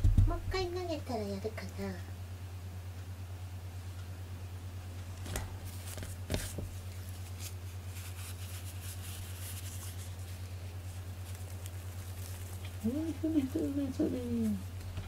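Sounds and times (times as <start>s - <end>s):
low steady hum: 0.0s - 15.0s
cat toy rustling: 5.6s - 14.8s.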